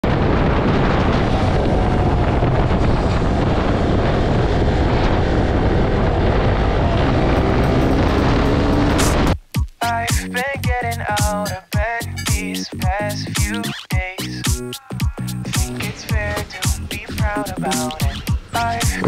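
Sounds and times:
wind rushing on microphone: 0.0s - 9.4s
motorcycle engine running: 5.8s - 9.4s.

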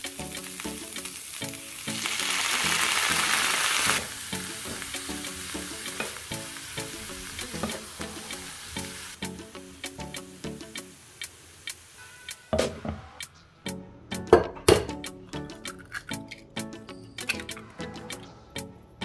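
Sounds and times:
loud hiss of water in pan: 0.0s - 12.3s
cabbage frying in a pan: 0.0s - 12.5s.

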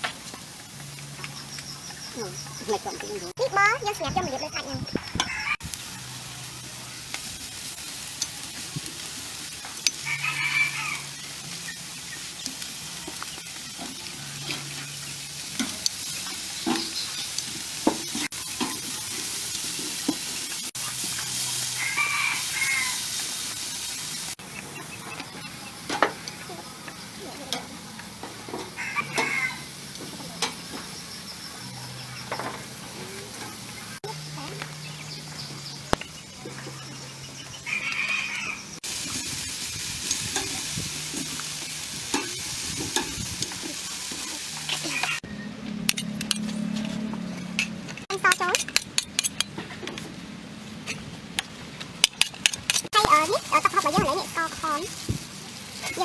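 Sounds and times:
steaks sizzling on a grill: 0.0s - 45.2s, 52.5s - 56.0s
chicken calling: 5.0s - 5.6s, 21.7s - 23.1s, 28.7s - 29.8s, 37.5s - 38.8s, 43.8s - 45.3s.

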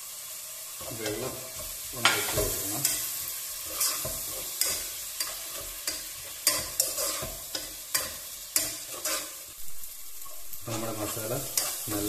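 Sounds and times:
sauce sizzling: 0.0s - 12.0s
spatula scraping a pot: 0.8s - 9.5s, 10.2s - 12.0s.

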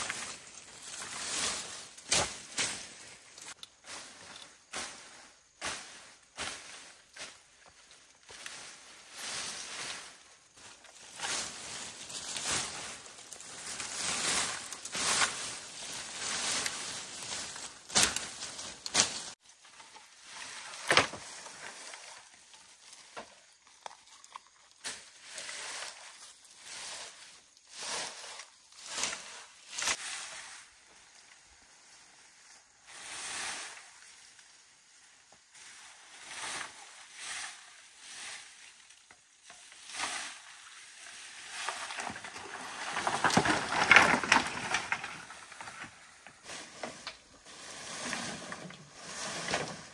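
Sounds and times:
bamboo and brushwood rustling: 0.0s - 49.9s
brush being dragged: 8.4s - 19.4s, 39.6s - 49.9s.

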